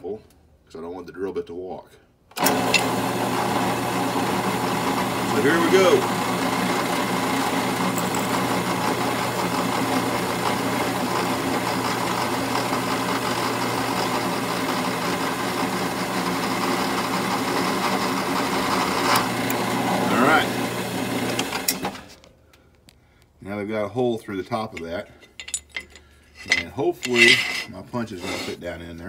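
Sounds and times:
drill press motor running: 2.4s - 22.0s
drill bit scraping metal: 5.3s - 9.4s, 26.4s - 28.6s.

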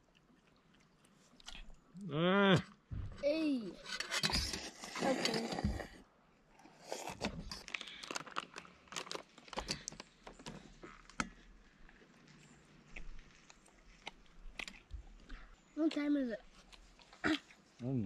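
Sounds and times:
crinkling rustles: 7.0s - 17.7s.

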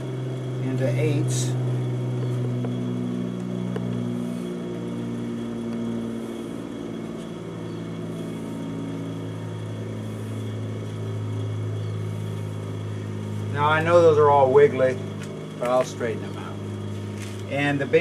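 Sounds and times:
low machine hum: 0.0s - 18.0s.

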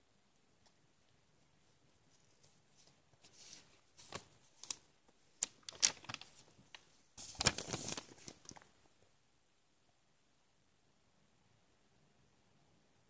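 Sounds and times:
paper pages rustling: 2.0s - 8.7s.

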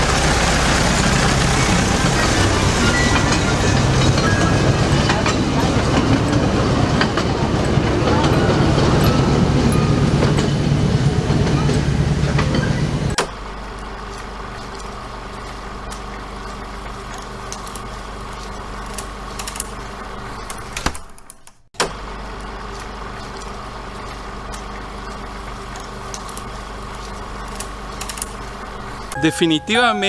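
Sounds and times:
mechanical hum: 0.0s - 29.2s.

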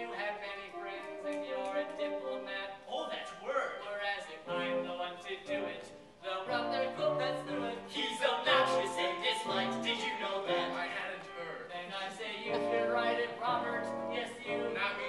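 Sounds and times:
boys singing a cappella: 4.2s - 15.0s.

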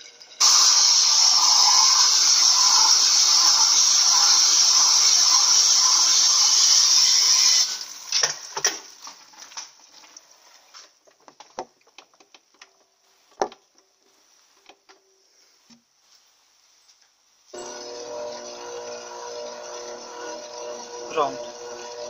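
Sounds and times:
washing machine spinning: 0.4s - 8.5s, 17.6s - 22.0s.

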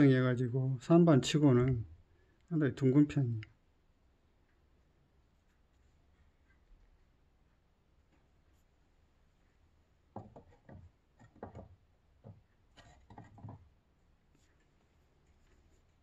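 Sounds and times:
pot knocks and scrapes on wood: 10.1s - 13.7s.

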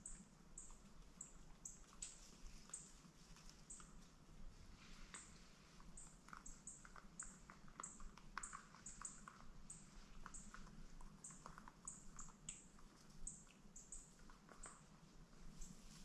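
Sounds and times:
soft clicks and ticks: 5.0s - 15.7s.

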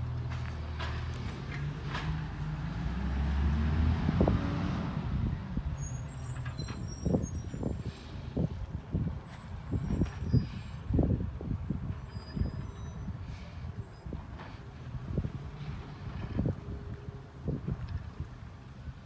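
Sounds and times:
truck engine revving: 0.7s - 7.2s.

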